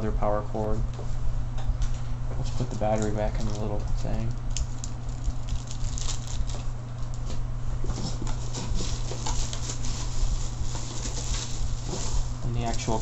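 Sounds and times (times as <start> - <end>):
steady low hum: 0.0 - 13.0
hands rummaging in cardboard box: 8.0 - 12.4.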